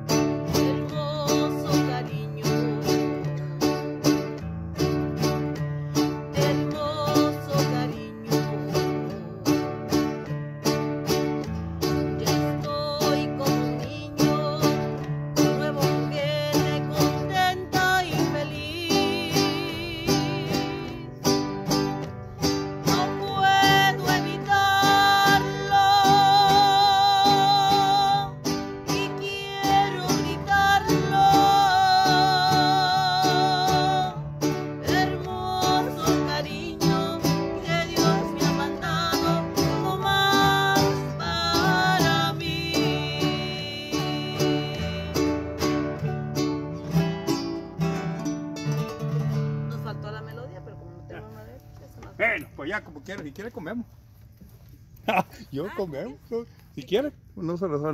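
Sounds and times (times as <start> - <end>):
woman singing with vibrato: 0.0 - 4.2, 5.2 - 46.0
acoustic guitars strummed: 0.0 - 55.8.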